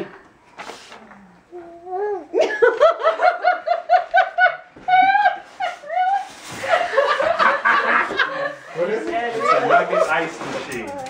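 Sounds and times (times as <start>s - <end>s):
woman laughing hard: 2.4s - 8.6s.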